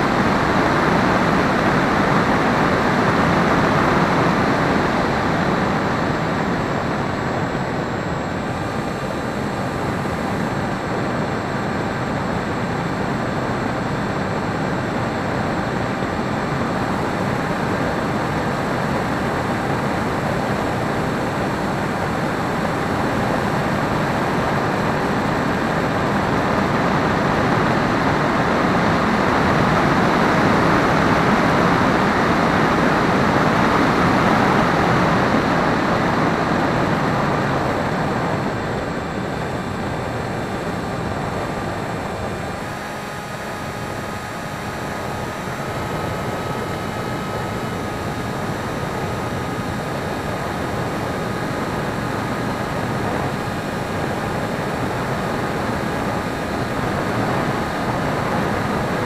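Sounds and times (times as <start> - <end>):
faint electric motor whine: 0.0 - 59.0
wind and propeller rush: 0.0 - 59.0.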